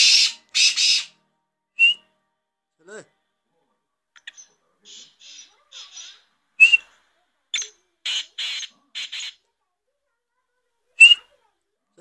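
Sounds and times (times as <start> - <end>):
bird harsh grating notes: 0.0 - 1.2, 4.3 - 6.9, 7.6 - 9.4, 11.0 - 11.3
bird whistled call: 1.8 - 2.0, 5.2 - 6.9, 11.0 - 11.2.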